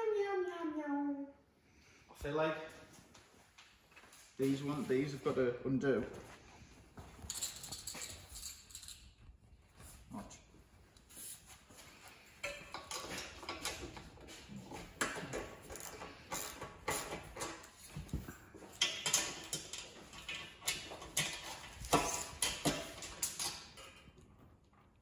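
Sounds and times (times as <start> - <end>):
hand tools clicking on bolts: 12.4 - 17.8, 18.7 - 24.0.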